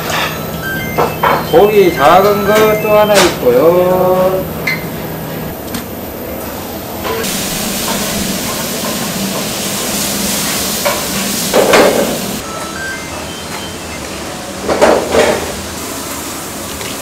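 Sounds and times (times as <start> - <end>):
water spraying and splashing: 7.2 - 12.4.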